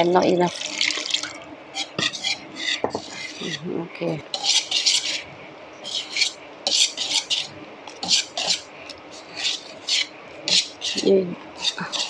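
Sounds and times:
whisk scraping metal bowl: 0:01.8 - 0:03.7, 0:04.3 - 0:12.0.

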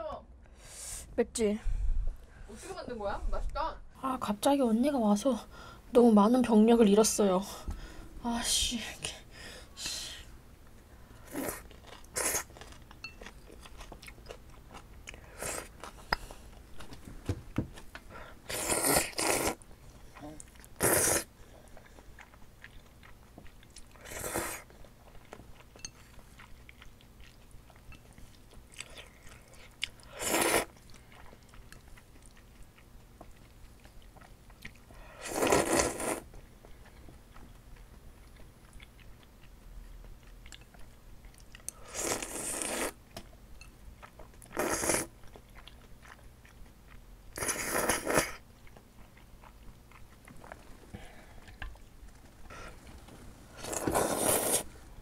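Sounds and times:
faint air-conditioner hum: 0:00.0 - 0:55.0
soft chewing and mouth clicks: 0:10.6 - 0:20.8, 0:21.4 - 0:54.7
loud noodle slurping: 0:11.3 - 0:12.5, 0:18.5 - 0:19.6, 0:20.8 - 0:21.3, 0:24.0 - 0:24.7, 0:30.1 - 0:30.7, 0:35.2 - 0:36.2, 0:41.9 - 0:43.0, 0:44.6 - 0:45.1, 0:47.4 - 0:48.4, 0:53.6 - 0:54.7.

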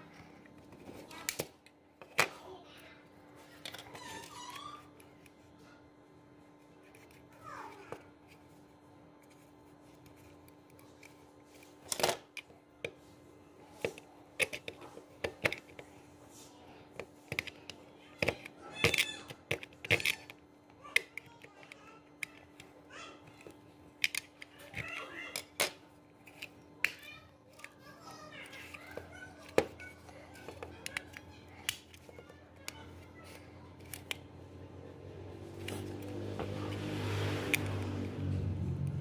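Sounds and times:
screwdriver clicking and scraping: 0:13.8 - 0:15.8, 0:17.3 - 0:22.7, 0:23.3 - 0:27.8, 0:28.4 - 0:34.2, 0:37.4 - 0:37.8.

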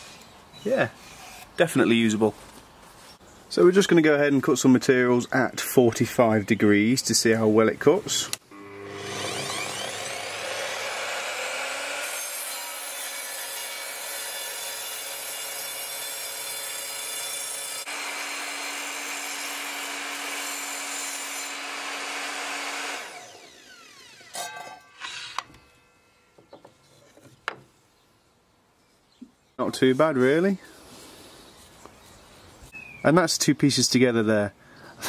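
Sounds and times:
saw motor winding down: 0:08.5 - 0:13.2, 0:17.6 - 0:26.3
mitre saw cutting wood: 0:08.5 - 0:25.8.

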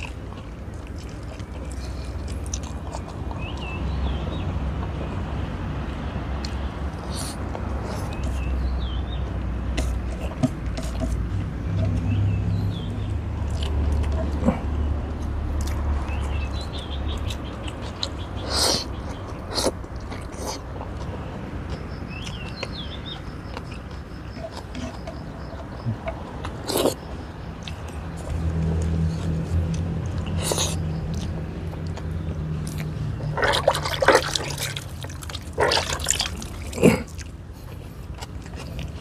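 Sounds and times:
man chewing food: 0:00.0 - 0:39.0
lip smacks: 0:22.2 - 0:39.0.

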